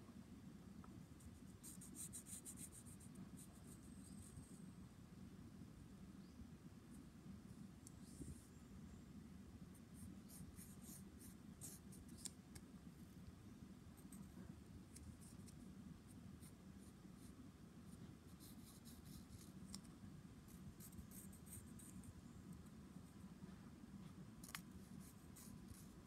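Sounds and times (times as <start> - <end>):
low room hum: 0.0 - 26.0
pencil scratching on paper: 10.0 - 12.3, 18.3 - 19.8, 20.5 - 22.0, 24.5 - 26.0.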